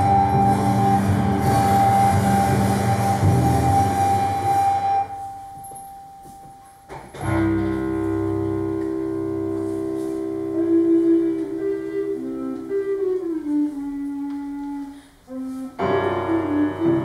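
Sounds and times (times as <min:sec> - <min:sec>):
mixed ensemble playing contemporary music: 0:00.0 - 0:05.4.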